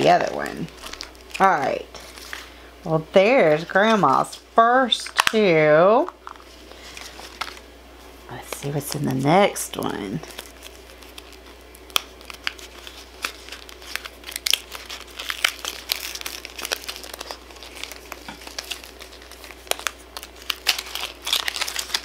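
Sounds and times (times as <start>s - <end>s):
crinkly wrapper tearing: 0.0s - 2.5s, 10.2s - 22.0s.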